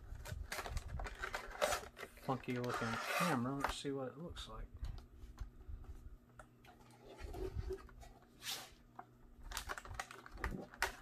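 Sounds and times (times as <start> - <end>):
plastic scraping rustle: 0.1 - 3.8, 6.8 - 8.8, 9.4 - 11.0.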